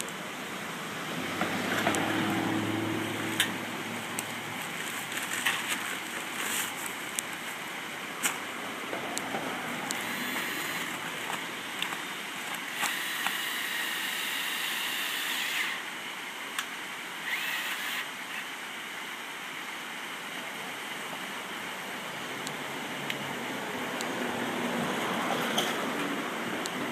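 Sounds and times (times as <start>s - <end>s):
stream rushing: 0.0s - 26.9s
cordless drill whining: 9.9s - 11.0s, 12.6s - 15.9s, 17.2s - 18.5s.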